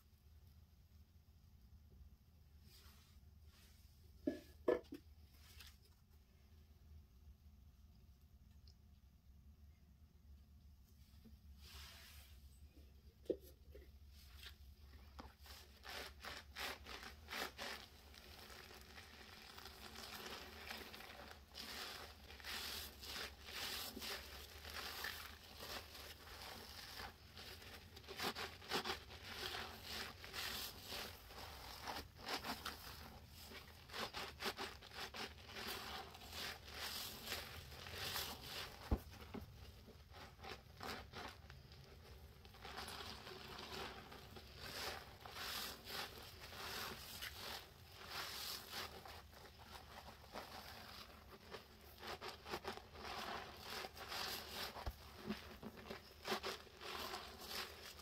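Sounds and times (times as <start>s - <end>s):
wet sponge squelches: 10.9s - 12.8s, 13.5s - 58.0s.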